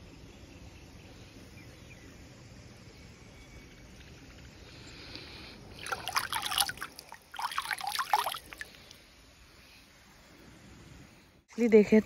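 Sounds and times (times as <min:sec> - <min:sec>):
hand splashing stream water: 0:05.7 - 0:09.0.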